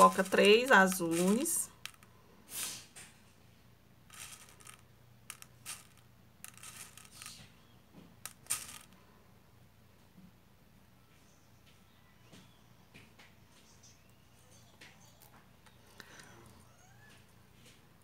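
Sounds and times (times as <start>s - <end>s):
beads clicking on needle: 0.0s - 2.1s, 4.1s - 7.5s, 8.2s - 9.0s
short rustles of beads: 0.0s - 3.3s, 4.0s - 9.0s.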